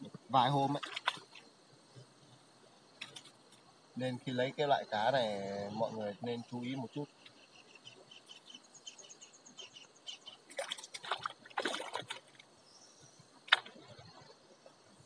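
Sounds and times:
water splashing: 0.0s - 2.2s, 2.8s - 3.7s, 10.2s - 15.0s
faint high chirping: 1.2s - 10.6s.

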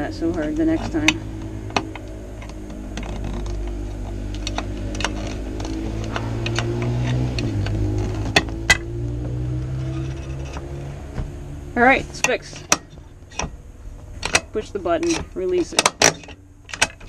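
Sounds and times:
steady low hum: 0.0s - 17.0s
brake lever ratchet clicks: 1.0s - 8.8s, 14.2s - 14.6s, 15.2s - 17.0s.

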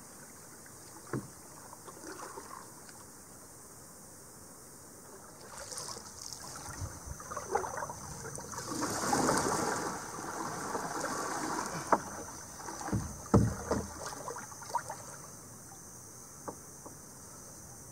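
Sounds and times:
canoe paddle splashing water: 0.1s - 3.0s, 5.1s - 15.6s
sharp knocks: 12.8s - 13.9s.

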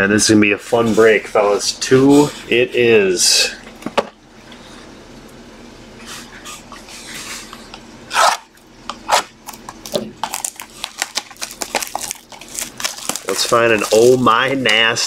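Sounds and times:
plastic wrap tearing and crinkling: 9.1s - 15.0s.

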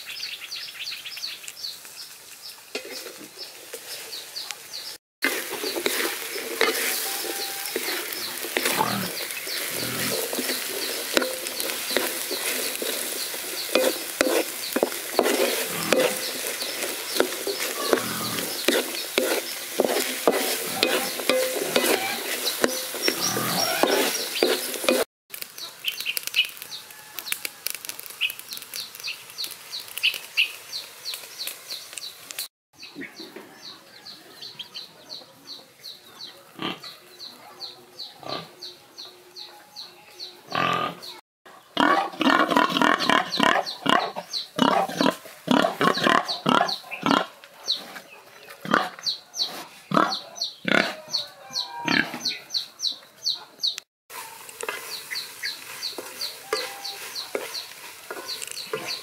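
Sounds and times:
chickens clucking: 2.8s - 29.0s, 32.8s - 59.0s
pig grunting: 8.7s - 9.1s, 9.7s - 10.1s, 17.8s - 18.4s, 36.6s - 36.9s, 40.5s - 41.1s, 41.8s - 47.3s.

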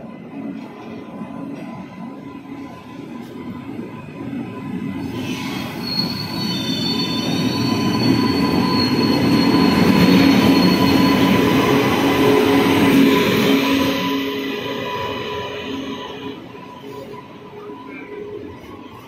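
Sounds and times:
train wheels rumbling on rails: 0.0s - 19.0s
brake squeal: 5.0s - 17.2s.

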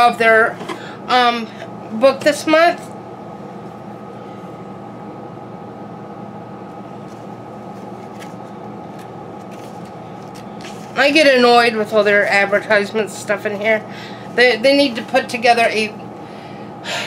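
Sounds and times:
machine hum: 0.0s - 17.0s
paper rustling: 7.0s - 11.0s.

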